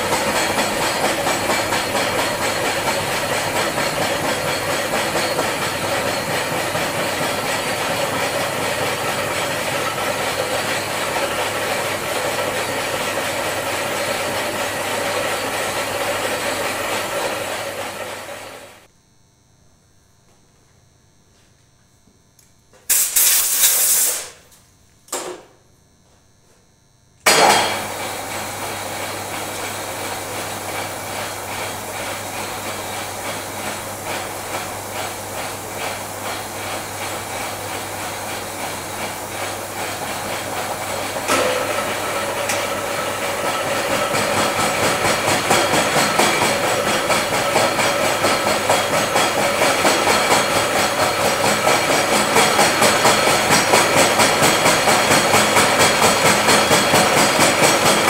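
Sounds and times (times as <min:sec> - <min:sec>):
milling cutter working metal: 0:00.0 - 0:18.9, 0:27.3 - 0:58.0
milling machine spindle humming: 0:00.0 - 0:18.9, 0:27.3 - 0:58.0
compressed air blasts: 0:22.9 - 0:24.4.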